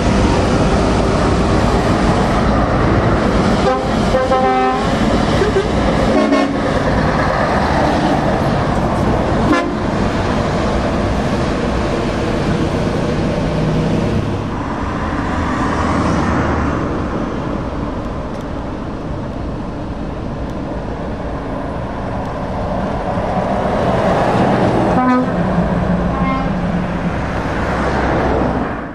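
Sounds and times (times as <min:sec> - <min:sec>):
heavy trucks driving past: 0:00.0 - 0:28.9
truck air horns: 0:03.6 - 0:06.7, 0:09.5 - 0:09.8, 0:24.9 - 0:25.4, 0:26.1 - 0:26.6.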